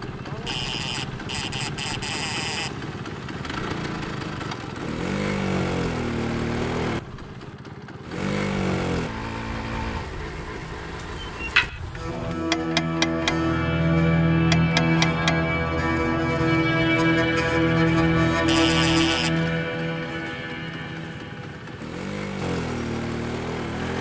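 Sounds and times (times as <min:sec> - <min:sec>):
small motorbike engine revving: 0:00.0 - 0:12.2, 0:17.0 - 0:24.0
music: 0:12.0 - 0:23.3.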